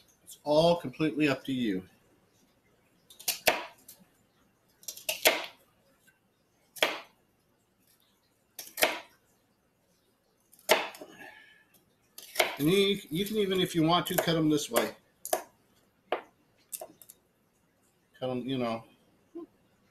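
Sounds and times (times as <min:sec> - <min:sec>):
knife chopping on cutting board: 0:03.2 - 0:03.8, 0:04.9 - 0:05.6, 0:06.8 - 0:07.1, 0:08.6 - 0:09.1, 0:10.6 - 0:11.0, 0:12.2 - 0:12.7, 0:14.1 - 0:15.5.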